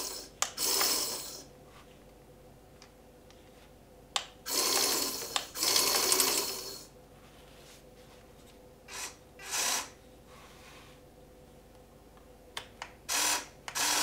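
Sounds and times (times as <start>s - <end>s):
toy breaker hammer rattling: 4.5s - 6.8s.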